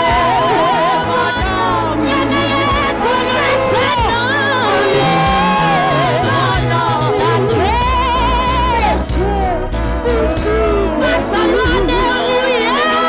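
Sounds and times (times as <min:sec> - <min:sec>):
woman singing with vibrato: 0:00.0 - 0:09.2
backing singers: 0:00.0 - 0:13.0
instrumental accompaniment with bass: 0:00.0 - 0:13.0.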